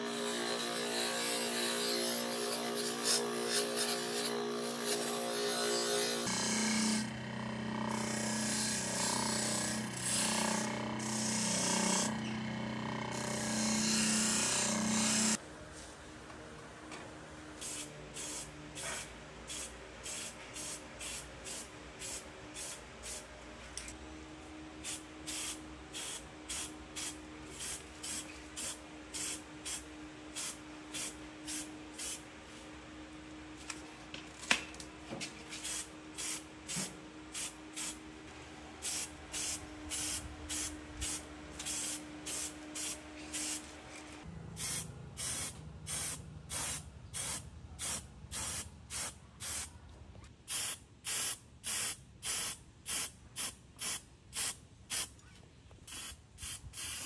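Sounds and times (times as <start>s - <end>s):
spray can hissing: 50.5s - 55.1s, 55.9s - 57.0s.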